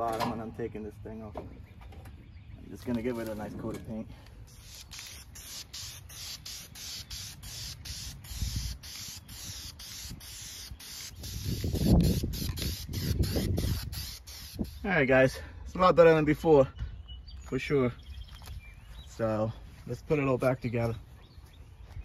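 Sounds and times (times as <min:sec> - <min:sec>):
spray paint can hissing: 0:04.5 - 0:14.9.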